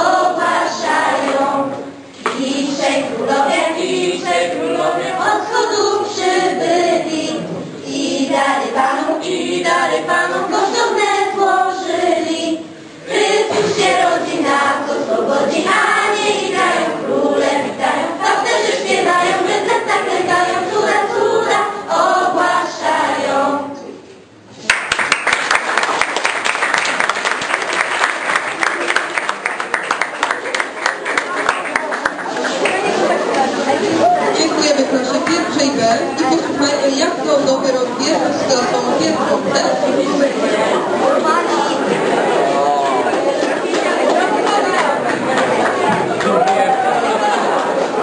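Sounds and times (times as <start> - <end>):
children's choir singing: 0.0 - 23.9, 30.4 - 48.0
applause: 24.6 - 32.9.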